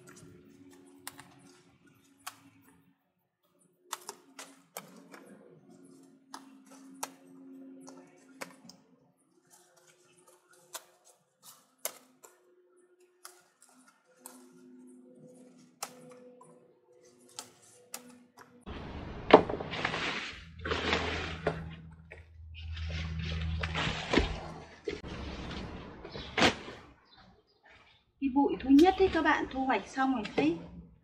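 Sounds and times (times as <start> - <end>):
rhubarb stalks snapping: 0.0 - 1.6, 3.9 - 5.2, 9.6 - 12.4
leaf rustle: 18.8 - 21.8.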